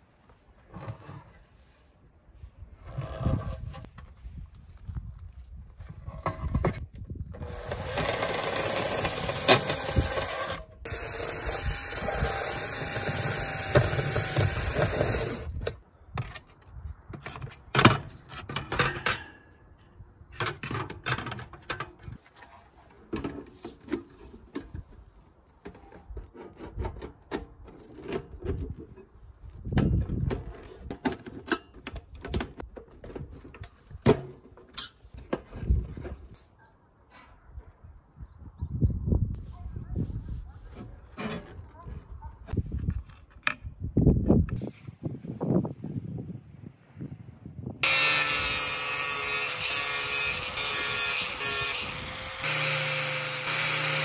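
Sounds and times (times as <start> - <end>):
cordless drill on steel: 7.4 - 15.5, 47.8 - 54.0
clinks and knocks of steel parts: 42.6 - 43.8.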